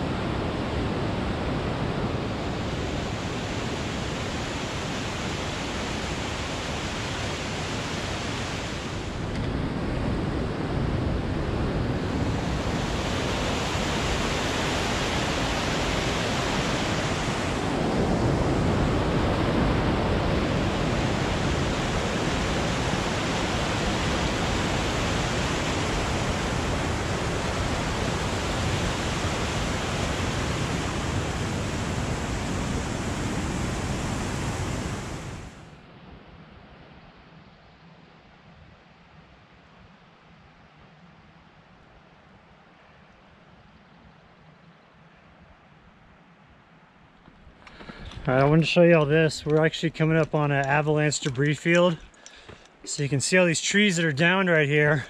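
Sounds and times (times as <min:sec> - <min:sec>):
whitewater rushing over rocks: 0:00.0 - 0:09.2, 0:11.9 - 0:35.6.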